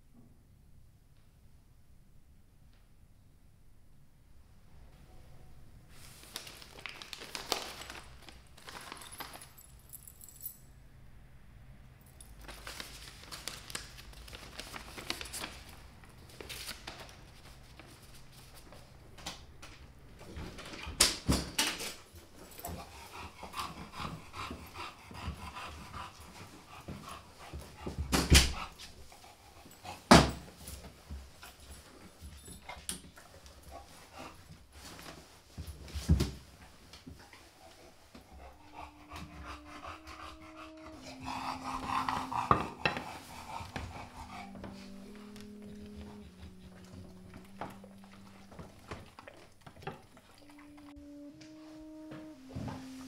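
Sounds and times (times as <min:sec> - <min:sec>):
dog whimpering and whining: 0:38.4 - 0:49.4, 0:50.0 - 0:53.0.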